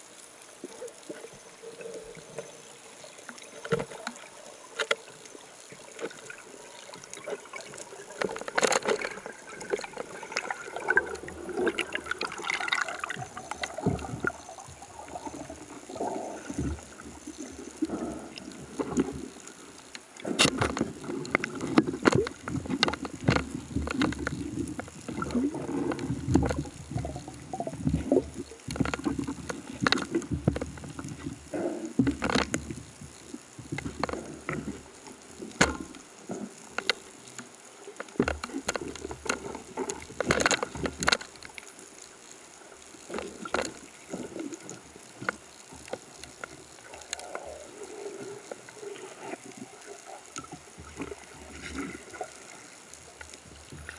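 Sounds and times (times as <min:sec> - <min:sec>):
underwater water rushing: 0:00.0 - 0:53.9
sharp clicks and knocks: 0:03.3 - 0:05.1, 0:08.2 - 0:11.0, 0:19.8 - 0:31.4, 0:32.0 - 0:41.7.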